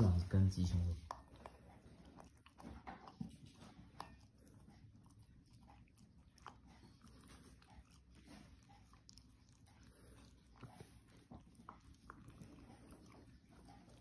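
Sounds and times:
puppy chewing: 0.0s - 14.0s.

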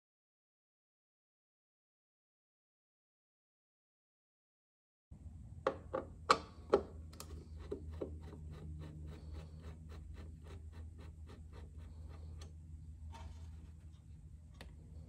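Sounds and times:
low hum: 5.1s - 15.0s.

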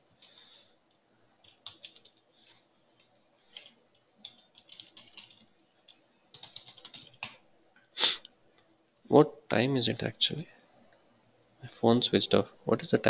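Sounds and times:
computer keyboard typing: 0.1s - 0.6s, 1.4s - 7.4s.

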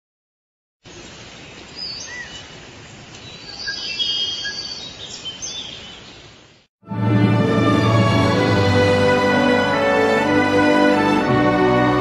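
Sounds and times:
birds whistling and chirping: 1.8s - 2.5s, 3.2s - 6.2s
bird trill: 3.3s - 6.2s.

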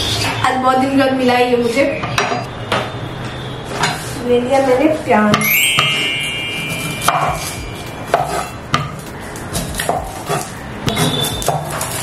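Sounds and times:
knife chopping onion on board: 6.8s - 12.0s.

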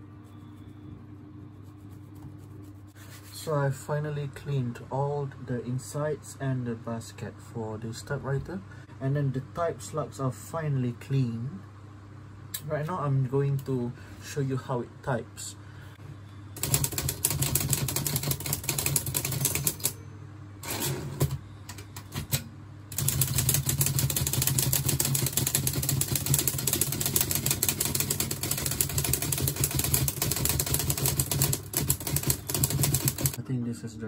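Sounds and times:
typewriter keys clattering: 16.6s - 20.0s, 23.0s - 33.4s.

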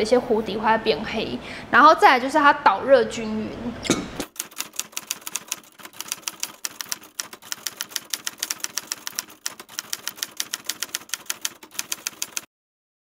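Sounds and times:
typewriter-like key clicks: 4.2s - 12.5s.

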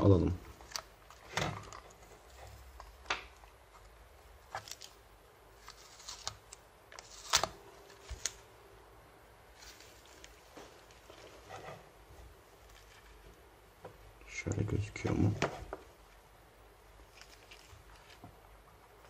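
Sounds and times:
tape peeling: 5.6s - 8.5s.

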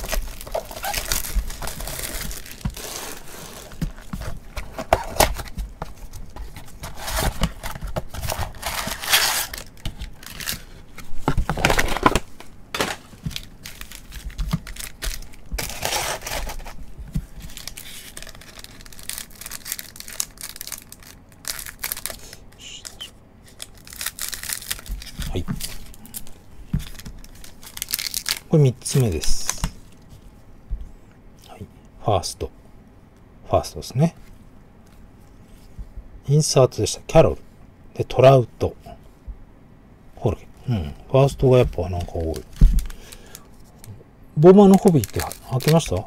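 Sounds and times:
plastic wrap tearing: 0.0s - 5.5s, 6.9s - 10.7s, 11.5s - 16.8s, 17.5s - 29.7s, 44.5s - 46.0s
foil packs crinkling: 0.0s - 30.0s, 41.8s - 46.0s.

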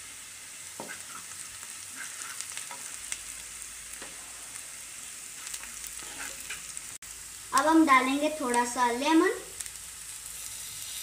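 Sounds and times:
onions sizzling in hot oil: 0.0s - 11.0s
wooden spatula scraping and tapping pan: 0.8s - 2.9s, 5.4s - 6.7s.

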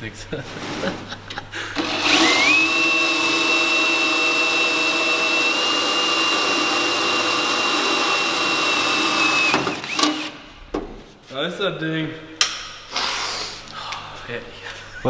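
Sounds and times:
electric motor whining: 1.8s - 10.3s.

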